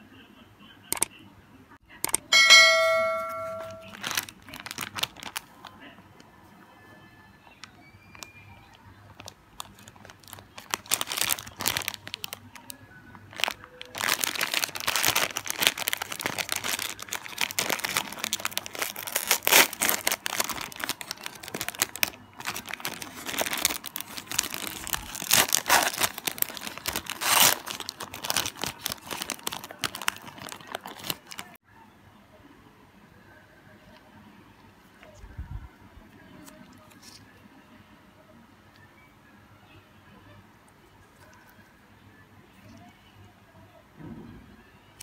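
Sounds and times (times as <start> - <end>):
plastic wrapper crinkling and tearing: 3.6 - 5.9, 7.6 - 31.6.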